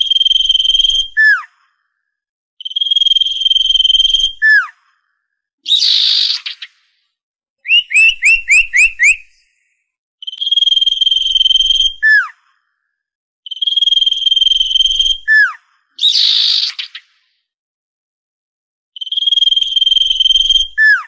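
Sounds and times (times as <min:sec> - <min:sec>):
bird whistling song: 0:00.0 - 0:01.6, 0:02.6 - 0:04.8, 0:05.6 - 0:06.8, 0:07.6 - 0:12.4, 0:13.5 - 0:17.2, 0:19.0 - 0:21.0
harsh rasping bird call: 0:07.7 - 0:09.4.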